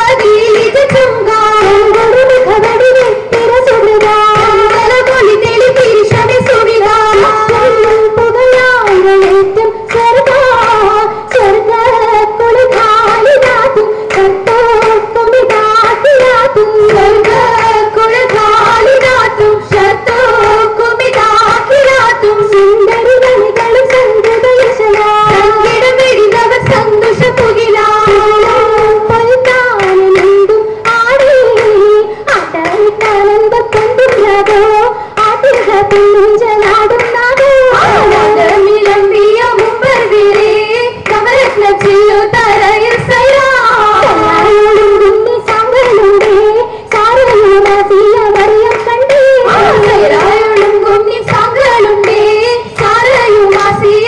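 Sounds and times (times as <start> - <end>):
rhythmic hand clapping: 0.0 - 54.0
high voices singing: 35.5 - 54.0.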